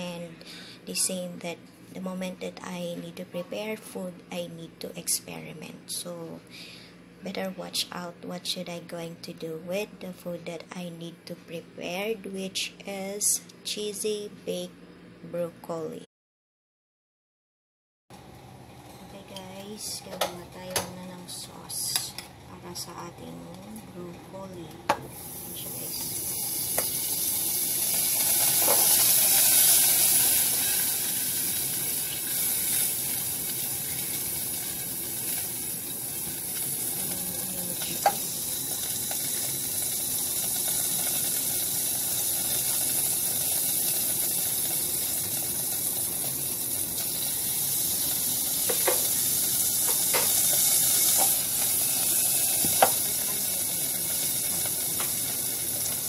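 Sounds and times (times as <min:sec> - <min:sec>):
pot sizzling hiss: 0:24.9 - 0:56.0.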